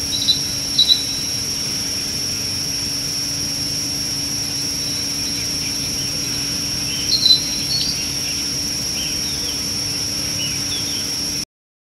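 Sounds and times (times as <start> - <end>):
bird chirps and calls: 0.0 - 1.4, 4.8 - 11.1
high insect drone: 0.0 - 11.5.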